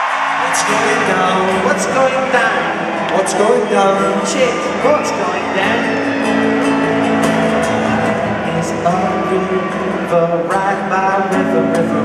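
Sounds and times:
acoustic guitar: 0:00.0 - 0:12.0
man singing: 0:00.3 - 0:06.0, 0:08.2 - 0:12.0.

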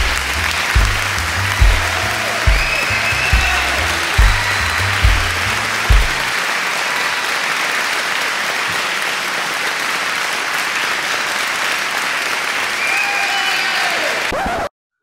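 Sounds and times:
music with bass and drum beat: 0:00.0 - 0:06.3
audience applause: 0:00.0 - 0:14.6.

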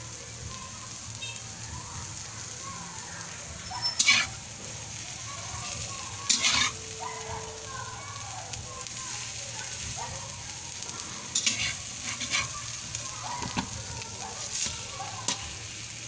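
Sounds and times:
egg sizzling in oil: 0:00.0 - 0:16.0
spatula scraping pan: 0:03.8 - 0:04.4, 0:05.6 - 0:06.9, 0:11.2 - 0:12.8, 0:14.4 - 0:15.5.

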